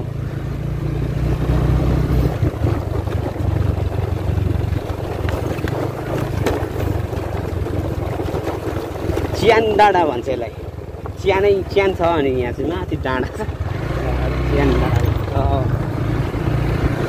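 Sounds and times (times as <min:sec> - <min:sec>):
small motorbike engine running: 0:00.0 - 0:17.0
wind noise on microphone: 0:01.1 - 0:10.1, 0:14.8 - 0:17.0
light knocks from bumpy ride: 0:02.4 - 0:13.6.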